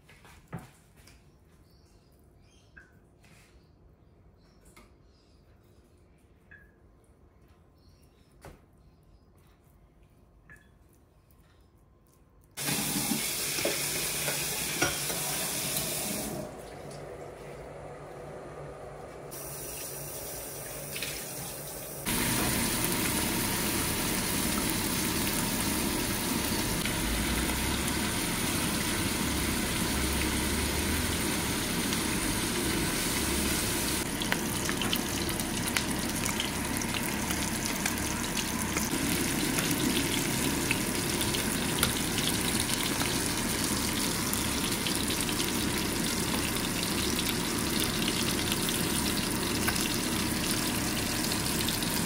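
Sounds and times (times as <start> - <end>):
hissing kitchen noise: 12.6 - 52.0
tofu sizzling in hot oil: 22.1 - 52.0.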